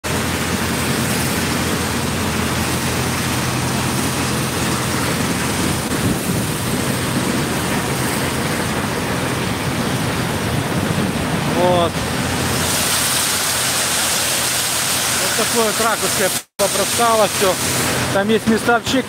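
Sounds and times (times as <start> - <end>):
shipyard machinery rushing: 0.0 - 19.0.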